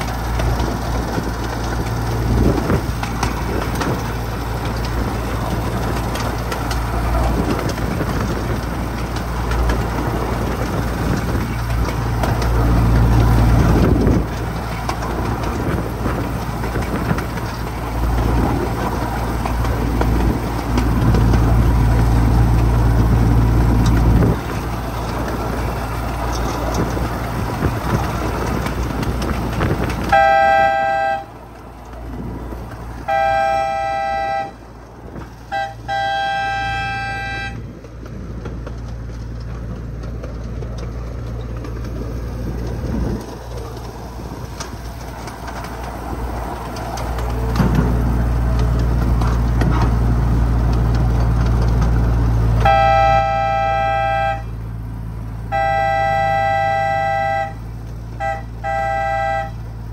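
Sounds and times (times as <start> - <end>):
miniature train locomotive humming: 0.0 - 59.9
two-tone train horn blasts: 30.0 - 31.4, 33.0 - 34.6, 35.4 - 37.7, 52.6 - 54.7, 55.5 - 59.7.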